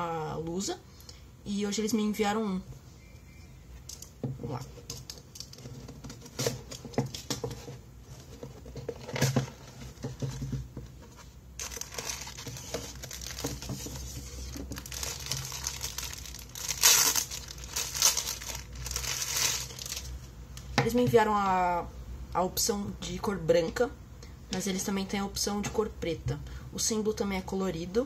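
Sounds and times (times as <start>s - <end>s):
plastic bag crinkling: 11.6s - 20.3s.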